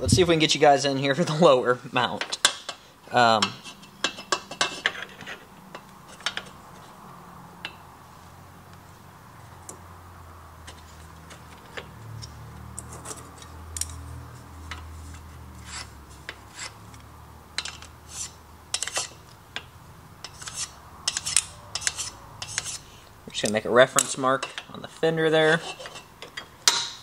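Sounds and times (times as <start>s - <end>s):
low steady hum: 0.0s - 2.3s
scribe scratching steel: 3.4s - 7.0s, 10.6s - 17.0s, 17.6s - 26.2s.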